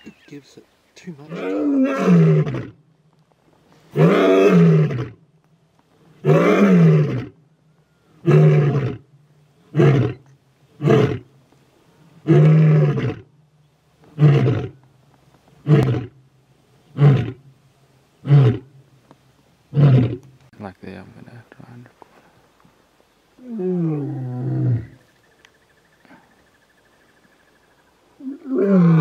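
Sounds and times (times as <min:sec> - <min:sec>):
lion roaring: 0:01.3 - 0:02.8, 0:03.9 - 0:05.2, 0:06.2 - 0:07.4, 0:08.2 - 0:09.0, 0:12.2 - 0:13.3, 0:23.4 - 0:25.0, 0:28.2 - 0:29.0.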